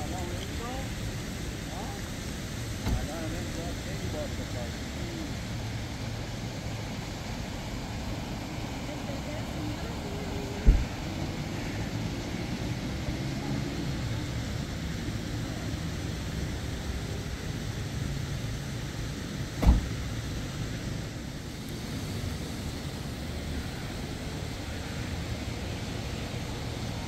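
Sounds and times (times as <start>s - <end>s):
vehicle engine rumble: 0.0s - 27.0s
thump: 2.8s - 3.1s, 10.6s - 10.9s, 19.6s - 20.0s.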